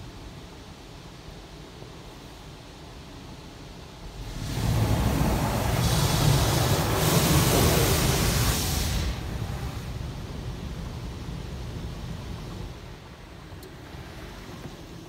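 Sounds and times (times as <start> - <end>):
car wash water jets spraying: 0.0 - 15.0.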